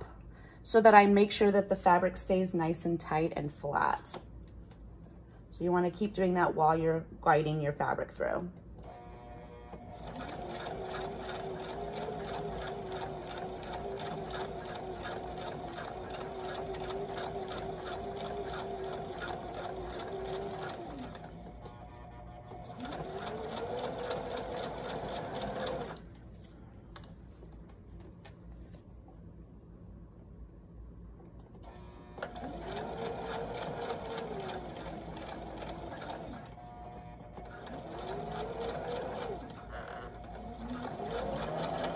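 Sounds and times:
sewing machine motor whine: 8.8 - 26.0, 31.6 - 41.9
sewing machine needle strokes: 10.0 - 21.5, 22.7 - 26.0, 32.2 - 36.5, 37.4 - 41.9.

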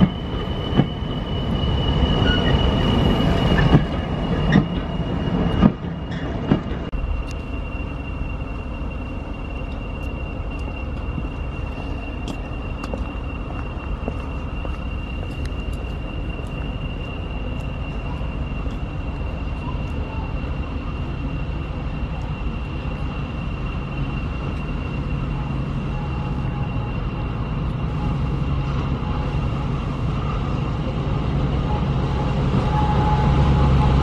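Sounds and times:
locomotive engine rumble: 0.0 - 34.0
steady high-pitched tone: 6.9 - 34.0.

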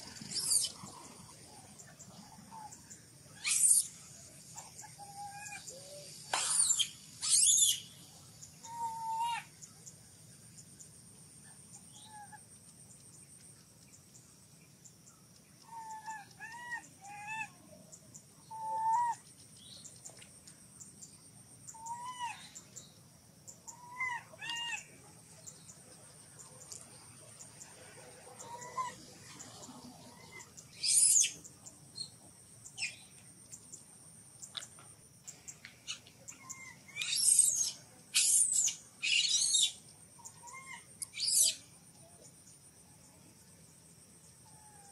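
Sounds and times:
high insect whine: 0.0 - 44.9
baby monkey coo calls: 0.3 - 1.0, 3.4 - 3.8, 6.4 - 7.8, 8.6 - 9.5, 36.3 - 39.7, 40.3 - 41.6
baby monkey shrill screams: 3.4 - 3.8, 6.4 - 7.8, 36.6 - 39.7, 40.5 - 41.6.

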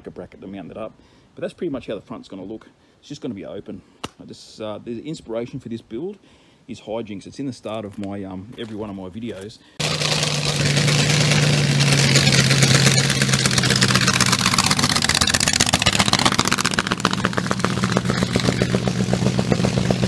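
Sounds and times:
drag car engine revving: 9.8 - 20.0
tyres spinning on dirt: 9.8 - 20.0.

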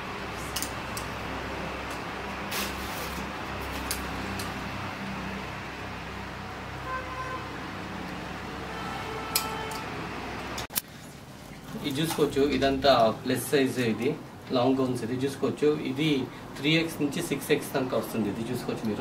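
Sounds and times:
faint street traffic: 0.0 - 19.0
faint horn toots: 6.8 - 7.6, 8.6 - 10.1.

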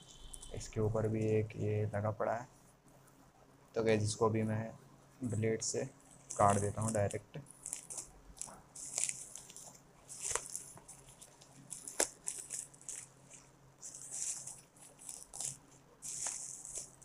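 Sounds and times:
bubble wrap crinkling: 0.1 - 1.3, 6.0 - 17.0.

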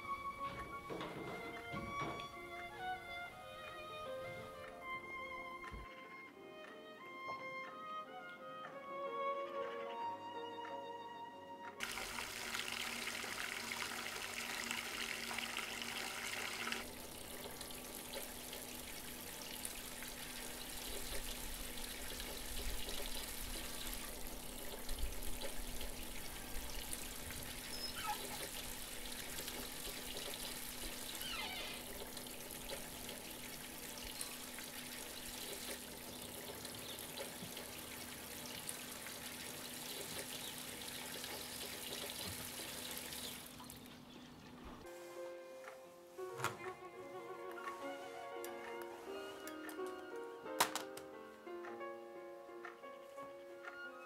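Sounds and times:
quiet running water: 0.0 - 6.9, 11.8 - 51.6
tap water filling bathtub: 0.4 - 2.9, 11.8 - 43.8.

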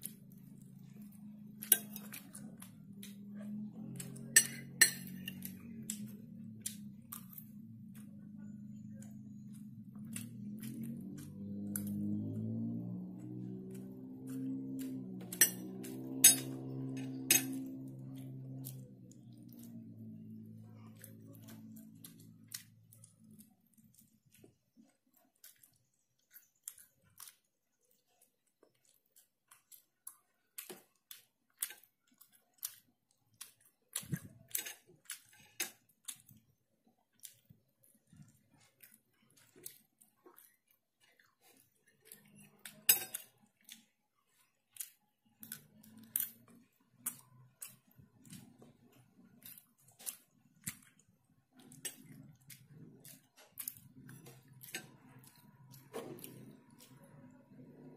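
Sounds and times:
mouth chewing meat: 0.1 - 57.9.

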